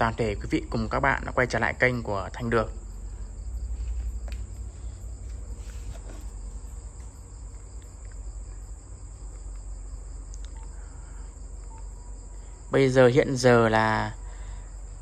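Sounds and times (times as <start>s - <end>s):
crickets chirring: 0.0s - 15.0s
low hum: 0.0s - 15.0s
faint ticks: 9.2s - 12.4s.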